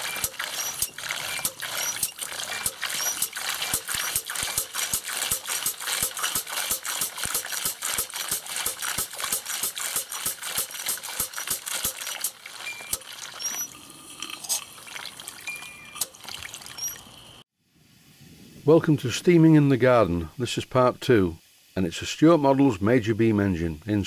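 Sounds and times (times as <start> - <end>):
pump mechanism clicking: 0.0 - 13.7, 15.5 - 17.0
water splashing into plastic tub: 0.0 - 13.7, 14.8 - 17.0.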